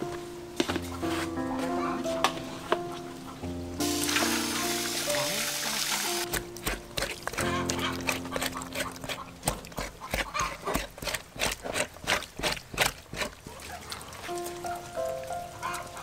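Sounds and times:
hands scrubbing wet tripe: 0:03.8 - 0:16.0.

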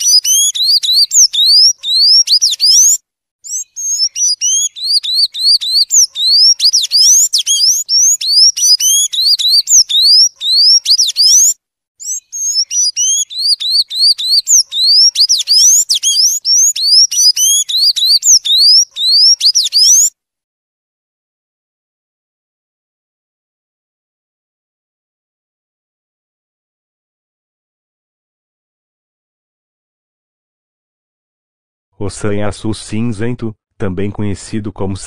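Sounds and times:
bird singing high squeaky notes: 0:00.0 - 0:20.1.

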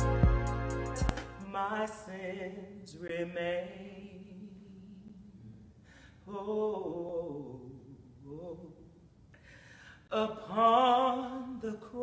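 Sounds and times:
woman singing: 0:00.9 - 0:05.6, 0:06.2 - 0:09.0, 0:10.1 - 0:12.0.

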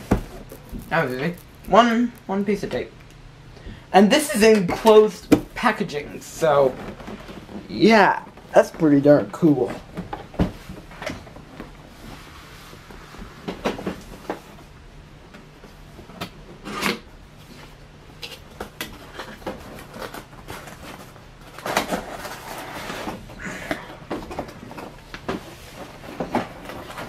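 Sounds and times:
cardboard rustling and scraping: 0:00.0 - 0:02.7, 0:15.7 - 0:27.0.

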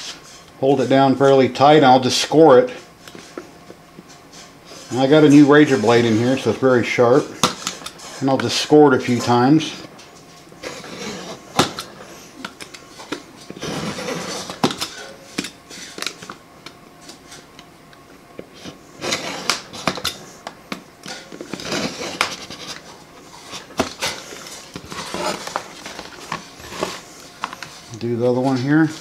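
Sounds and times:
knife scoring plastic: 0:18.6 - 0:27.9.

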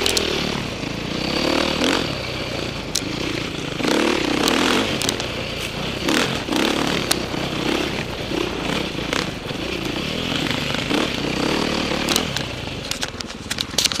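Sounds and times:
bike clicks and knocks: 0:00.0 - 0:00.4, 0:02.9 - 0:03.4, 0:04.3 - 0:14.0
dirt bike engine revving: 0:00.0 - 0:14.0.

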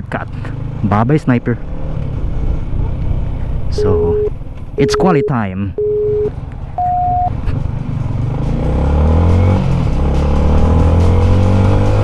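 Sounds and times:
short electronic beeps: 0:03.8 - 0:07.4
motorcycle engine accelerating: 0:07.3 - 0:12.0.

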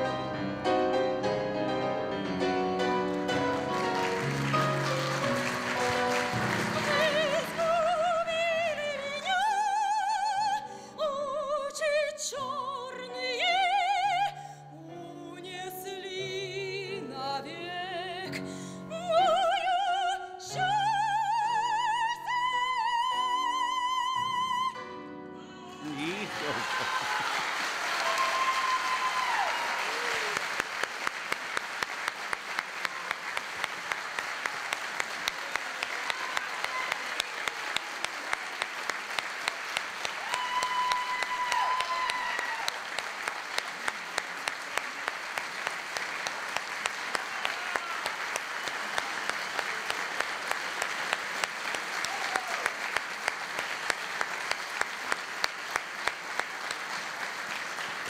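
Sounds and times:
audience applauding: 0:02.8 - 0:09.6, 0:25.6 - 0:58.0.

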